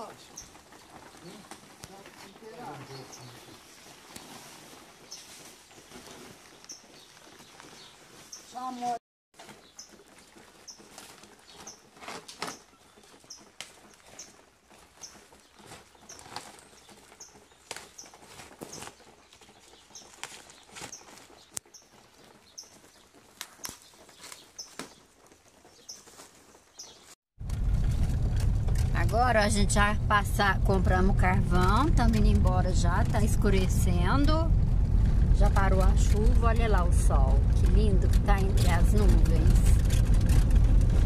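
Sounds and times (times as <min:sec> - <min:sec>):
charcoal and sacks crackling: 0:00.0 - 0:41.0
car driving rumble: 0:27.4 - 0:41.0.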